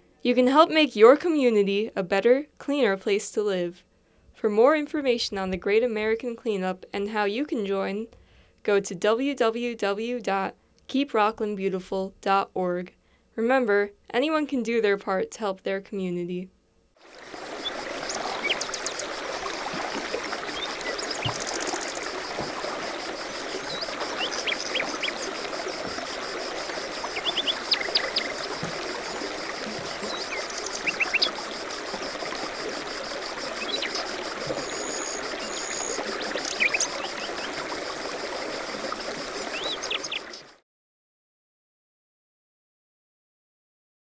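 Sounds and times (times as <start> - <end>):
stream running: 17.0 - 40.6.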